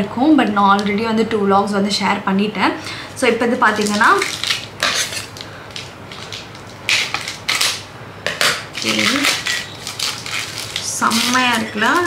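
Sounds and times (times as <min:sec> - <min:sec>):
packaging rustling and crinkling: 0:03.7 - 0:12.0.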